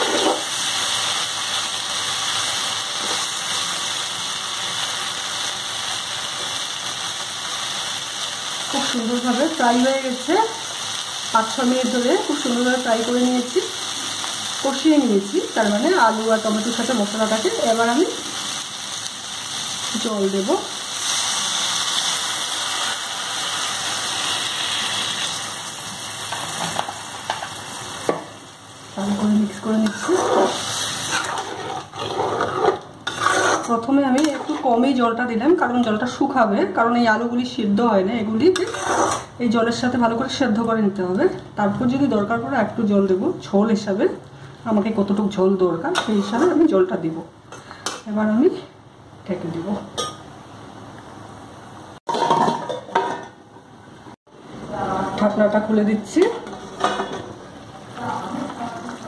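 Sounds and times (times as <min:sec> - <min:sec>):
food sizzling in oil: 0:00.0 - 0:36.6, 0:37.4 - 0:48.5, 0:54.7 - 0:59.0
metal spatula stirring in pan: 0:29.8 - 0:34.7, 0:38.6 - 0:39.3.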